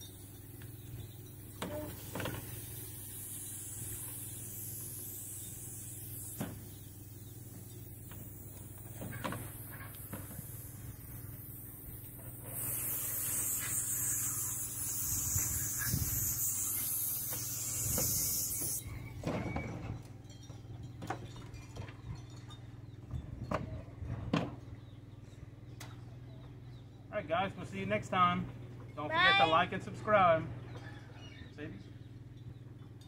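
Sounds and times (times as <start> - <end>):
low steady hum: 0.0 - 33.0
hose spray nozzle hissing: 1.6 - 18.8.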